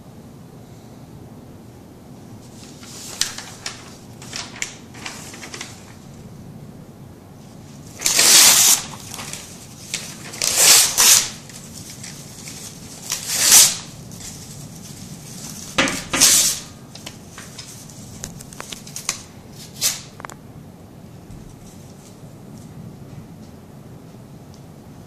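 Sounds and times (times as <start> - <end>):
paper rustling: 2.4 - 6.2, 7.4 - 20.3
paper tearing: 2.7 - 6.0, 7.9 - 16.7.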